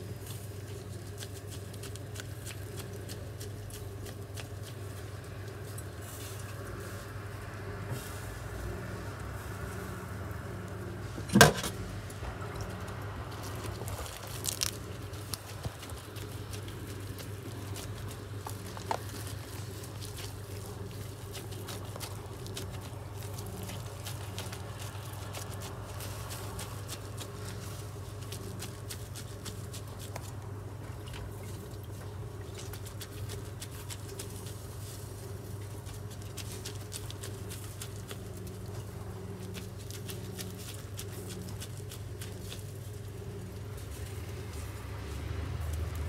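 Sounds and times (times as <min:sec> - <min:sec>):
wet squelching and patting of meat: 0:00.0 - 0:09.9, 0:12.0 - 0:46.0
steady low hum: 0:00.0 - 0:46.0.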